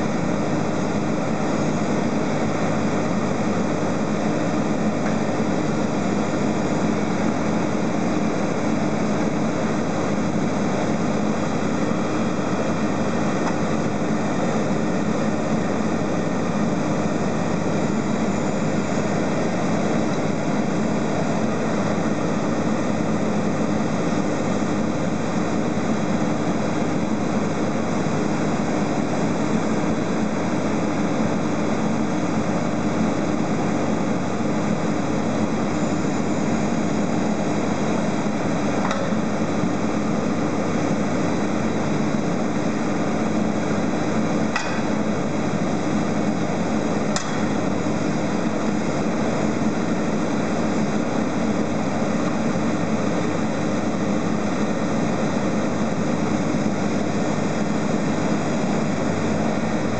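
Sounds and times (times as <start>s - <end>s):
sharp knocks from crane: 44.6s - 45.0s, 47.2s - 47.6s.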